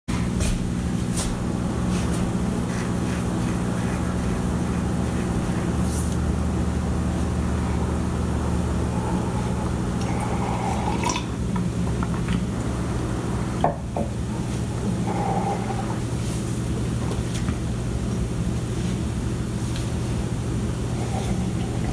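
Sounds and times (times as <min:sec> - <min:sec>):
low machine hum: 0:00.1 - 0:21.9.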